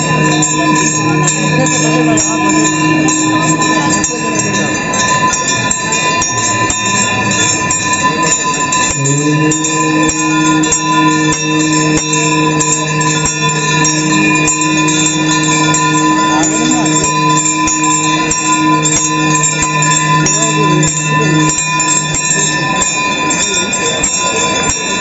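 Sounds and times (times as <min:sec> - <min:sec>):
low steady held tone: 0:00.0 - 0:24.8
temple bells ringing: 0:00.0 - 0:25.0.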